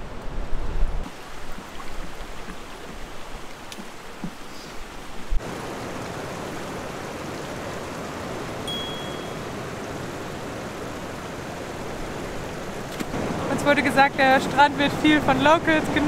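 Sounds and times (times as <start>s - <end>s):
wind rumbling on microphone: 0.0s - 3.5s
ocean surf on beach: 5.0s - 16.0s.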